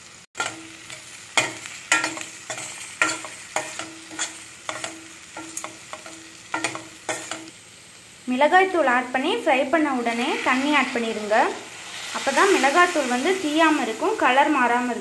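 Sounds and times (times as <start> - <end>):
oil sizzling: 0.0 - 15.0
spoon scraping pan: 0.4 - 7.5, 10.0 - 12.8.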